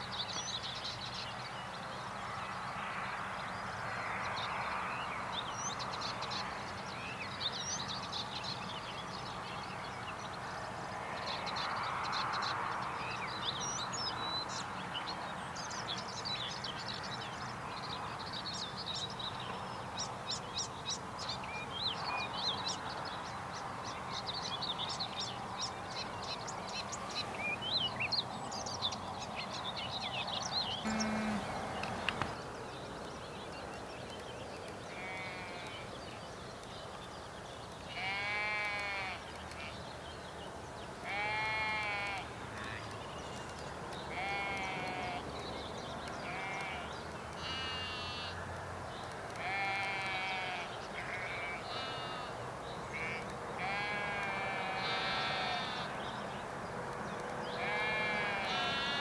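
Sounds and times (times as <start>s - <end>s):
small birds chirping: 5.4s - 59.0s.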